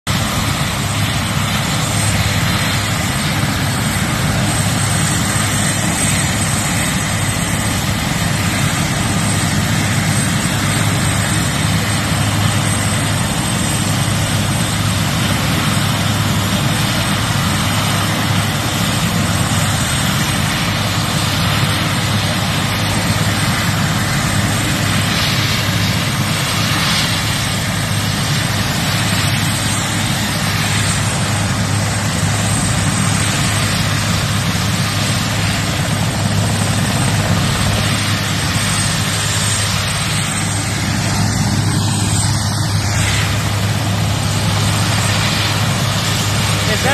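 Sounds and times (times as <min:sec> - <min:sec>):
helicopter rotor and turbine noise: 0:00.0 - 0:46.9.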